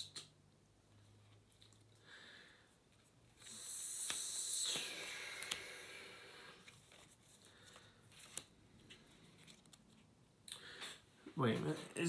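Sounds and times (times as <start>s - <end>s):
long exhaled sigh: 3.4s - 6.6s.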